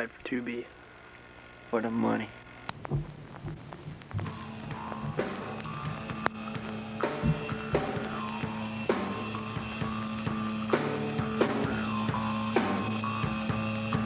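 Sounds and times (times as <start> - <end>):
drum kit beat: 2.9 - 14.0
held instrumental notes: 3.0 - 12.9.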